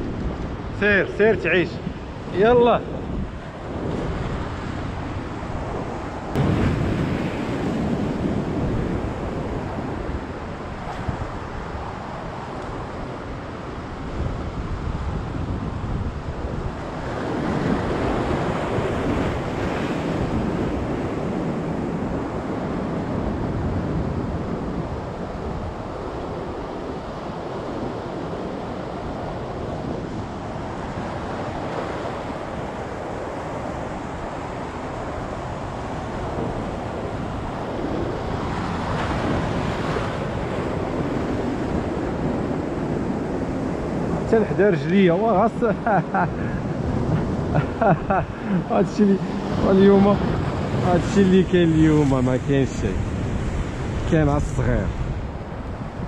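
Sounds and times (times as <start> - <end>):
wind buffeting microphone: 0.0 - 56.0
surf breaking over rocks: 3.5 - 12.7.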